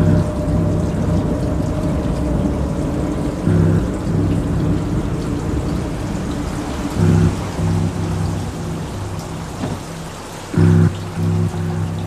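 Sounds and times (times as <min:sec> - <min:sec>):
electronic noise music: 0:00.0 - 0:12.0
low pitched swells: 0:03.3 - 0:09.6, 0:10.5 - 0:12.0.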